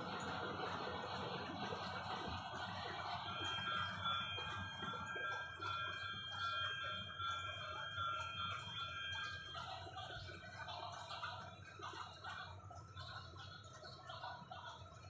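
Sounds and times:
high wavering tone: 0.0s - 11.2s.

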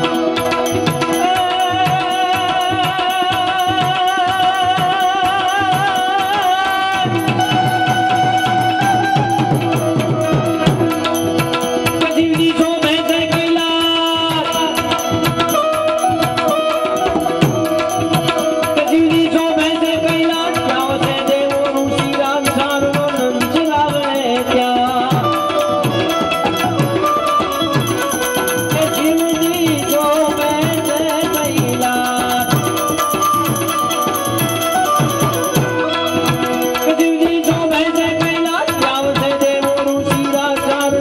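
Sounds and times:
harmonium melody: 0.0s - 41.0s
tabla rhythm: 0.0s - 41.0s.

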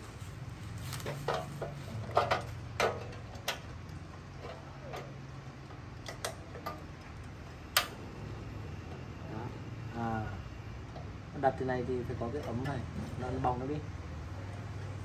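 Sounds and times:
low steady hum: 0.0s - 15.0s
igniter clicking: 2.4s - 8.2s.

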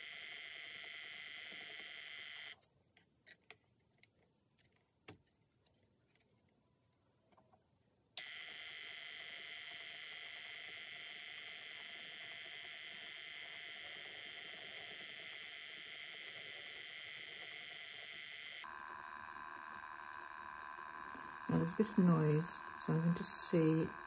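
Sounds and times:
spinning wheel motor whine: 0.0s - 2.6s, 8.2s - 24.0s.

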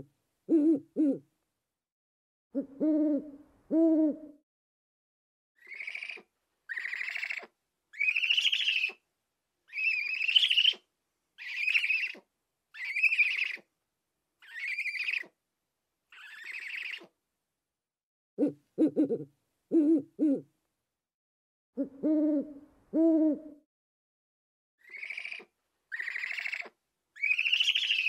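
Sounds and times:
owl rasping calls: 5.6s - 9.0s, 9.7s - 10.8s, 11.4s - 12.2s, 12.8s - 13.7s, 14.4s - 15.3s, 16.1s - 17.1s, 24.8s - 28.0s.

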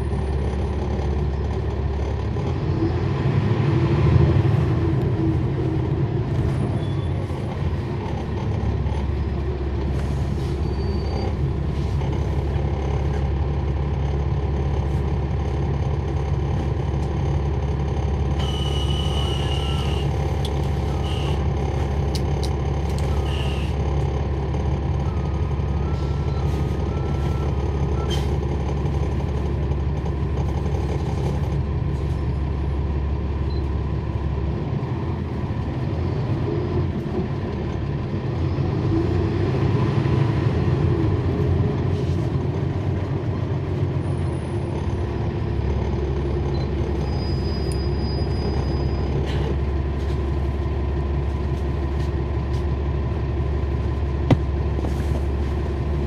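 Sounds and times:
bus diesel engine humming: 0.0s - 56.0s.

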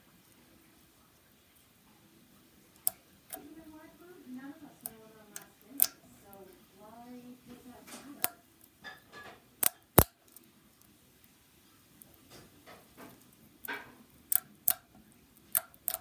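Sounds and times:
slime squelching: 4.4s - 6.4s, 14.3s - 16.0s.

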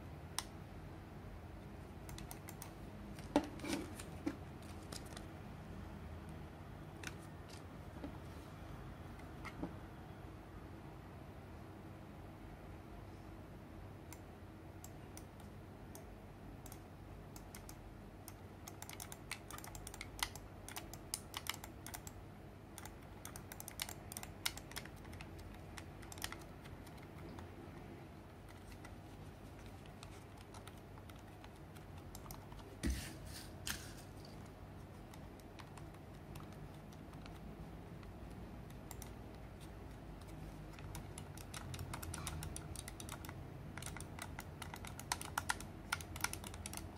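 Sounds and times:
fingers clicking and tapping mouse: 2.0s - 5.3s, 7.0s - 8.2s, 14.8s - 22.2s, 22.8s - 32.8s, 34.3s - 46.9s.

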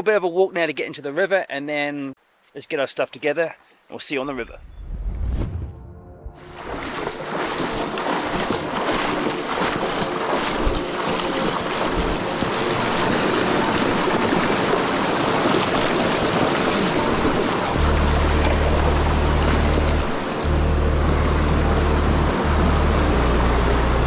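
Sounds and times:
rushing river water: 6.4s - 24.0s.

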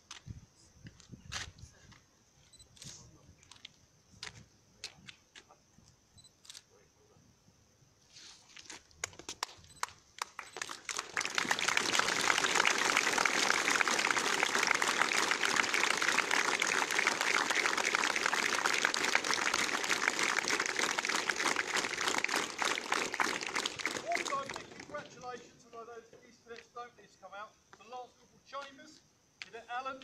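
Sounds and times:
crowd applauding: 9.8s - 25.4s.

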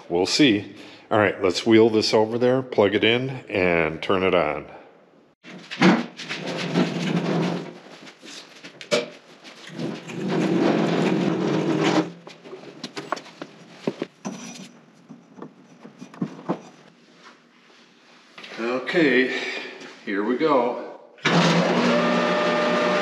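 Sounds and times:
casters rolling on concrete floor: 5.4s - 17.0s.

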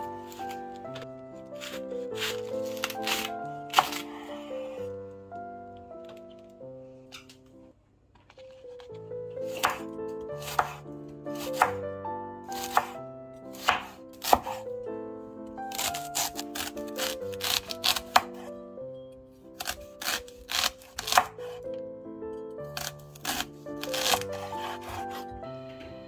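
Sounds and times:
knife slicing cabbage on board: 1.6s - 4.1s, 9.4s - 11.8s, 12.5s - 14.7s, 15.7s - 18.5s, 19.6s - 21.6s, 22.8s - 25.3s.

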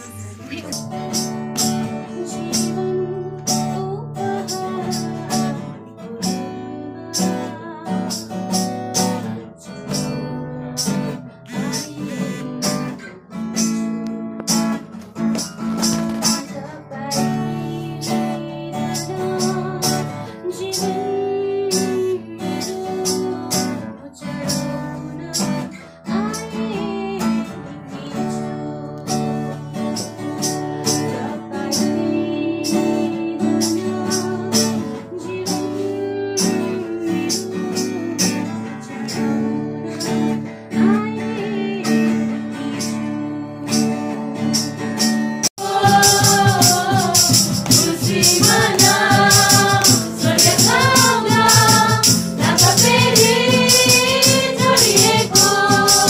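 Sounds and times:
acoustic guitar strumming: 0.0s - 56.0s
woman singing a carol: 2.0s - 8.2s, 11.5s - 12.7s, 16.5s - 29.9s, 30.7s - 38.6s, 39.8s - 44.0s, 45.6s - 56.0s.

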